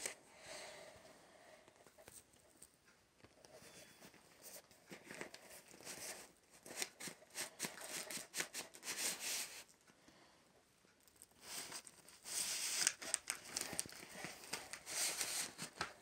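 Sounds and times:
paper crinkling and rustling: 0:03.5 - 0:09.7, 0:11.2 - 0:16.0.

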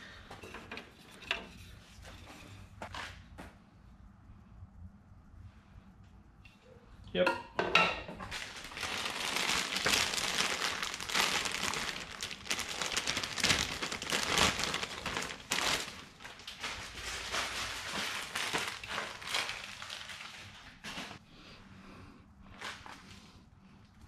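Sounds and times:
plastic bag crinkling: 0:08.3 - 0:21.2.

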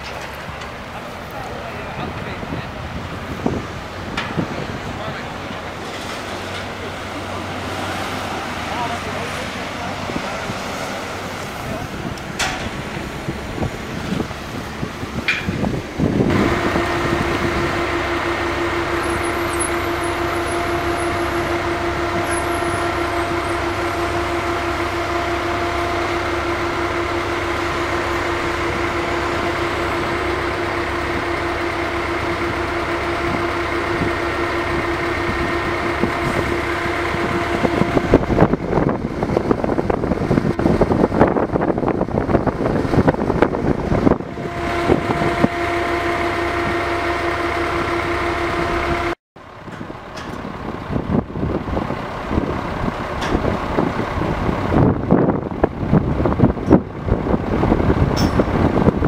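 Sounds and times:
rushing noise: 0:00.0 - 0:59.0
wind buffeting microphone: 0:00.0 - 0:59.0
low machine hum: 0:11.6 - 0:41.0, 0:41.8 - 0:51.3.

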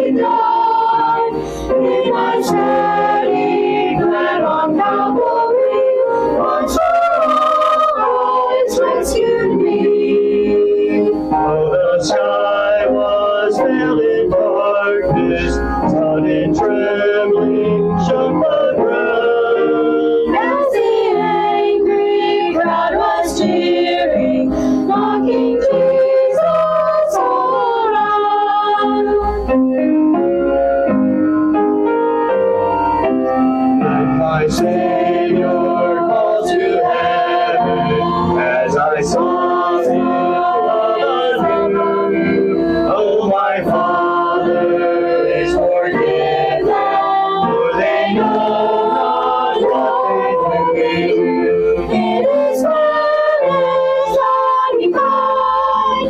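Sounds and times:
mixed choir singing: 0:00.0 - 0:29.4, 0:33.8 - 0:56.0.

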